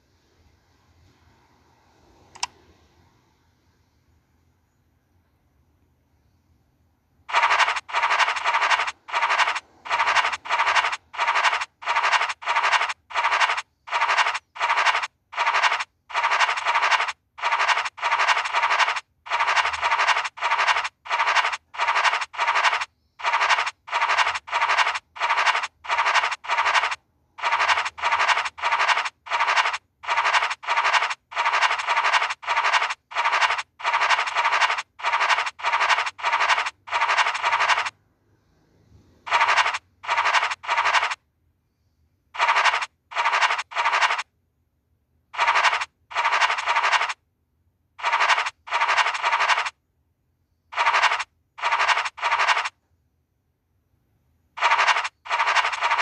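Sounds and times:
raspy scratching sound effect: 7.3 - 37.9, 39.2 - 41.2, 42.4 - 44.3, 45.4 - 47.2, 48.0 - 49.8, 50.7 - 52.8, 54.6 - 56.0.

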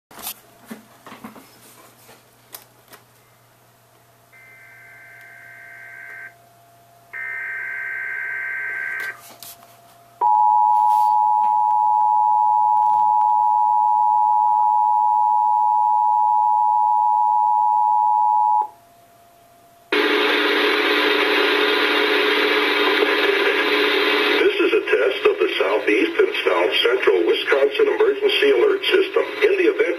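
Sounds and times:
buzzy screechy data bursts: 4.4 - 6.3
two-tone attention signal: 4.4 - 6.3.

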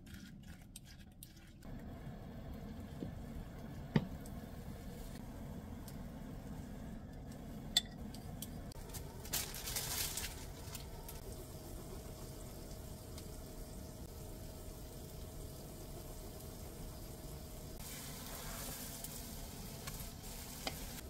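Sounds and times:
pan sizzling: 2.1 - 21.0
plastic bag rustling: 8.8 - 11.2.

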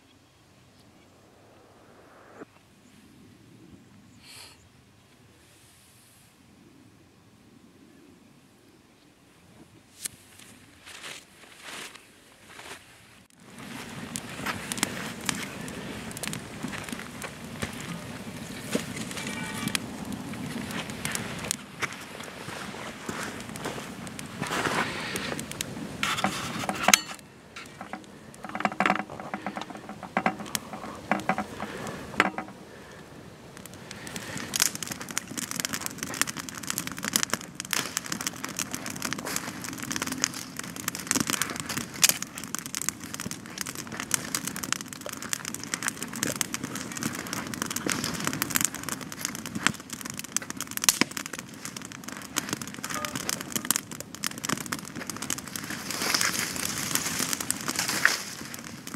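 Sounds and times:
campfire crackling and popping: 13.3 - 58.9.

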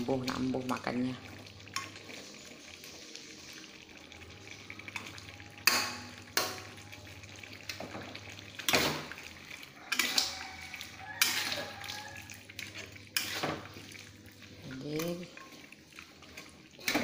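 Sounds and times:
faint sauce sizzling: 0.0 - 17.0
spatula scraping a wok: 8.6 - 17.0.

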